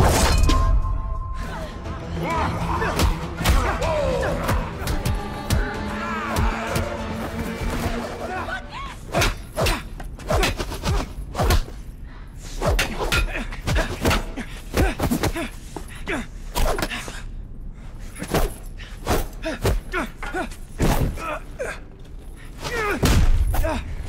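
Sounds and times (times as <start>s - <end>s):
staff fight thuds and blows: 22.6s - 24.0s.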